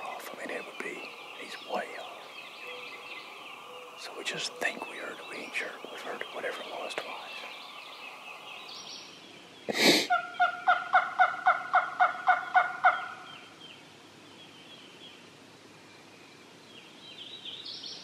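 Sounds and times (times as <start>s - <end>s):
bird-like calling: 0.0s - 9.0s, 10.1s - 13.6s.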